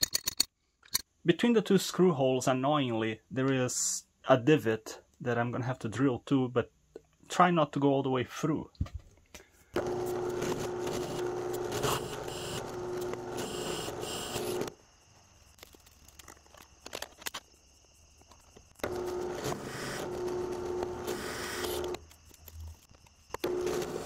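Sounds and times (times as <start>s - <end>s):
drill press drilling into steel: 9.8s - 14.7s, 18.8s - 22.0s, 23.4s - 24.0s.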